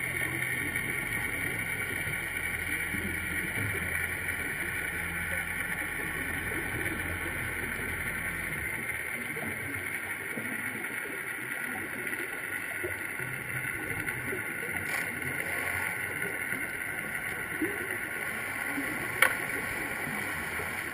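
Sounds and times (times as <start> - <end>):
low underwater rumble: 0.0 - 20.9
muffled underwater hiss: 0.0 - 20.9.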